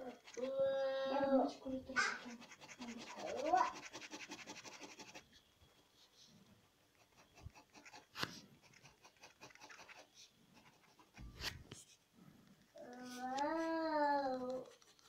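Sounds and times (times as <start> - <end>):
pen scratching on paper: 0.0 - 0.6, 1.6 - 5.3, 6.9 - 11.6.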